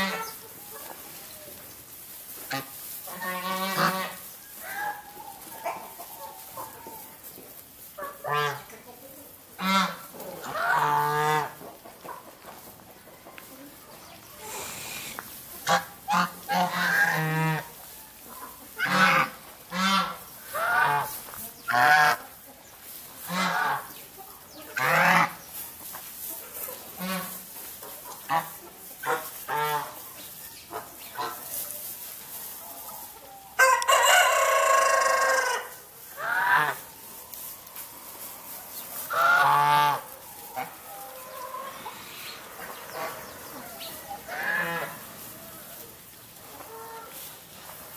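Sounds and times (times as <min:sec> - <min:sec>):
chickens squawking: 0:00.0 - 0:47.9
rooster crowing: 0:33.6 - 0:35.7.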